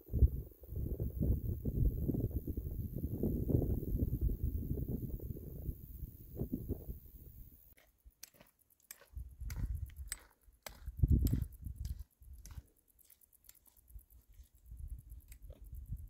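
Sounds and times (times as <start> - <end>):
low microphone rumbles: 0.0 - 7.7.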